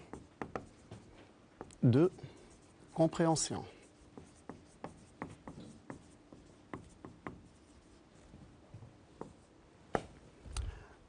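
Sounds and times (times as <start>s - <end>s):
marker writing on a whiteboard: 0.0s - 9.5s.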